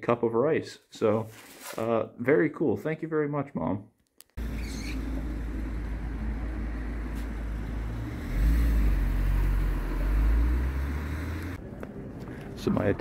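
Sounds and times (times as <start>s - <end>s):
road and engine rumble: 4.4s - 13.0s.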